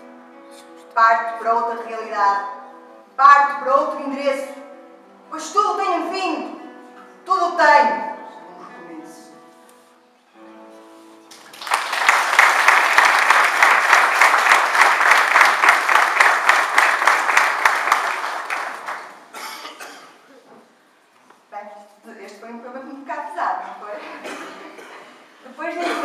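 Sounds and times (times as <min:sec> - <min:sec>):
audience clapping: 0:11.3 - 0:19.4.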